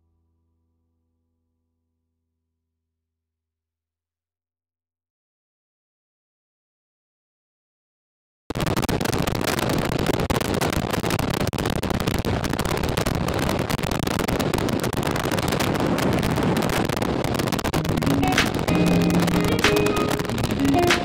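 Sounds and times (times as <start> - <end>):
wind rushing over microphone: 10.7 - 21.0.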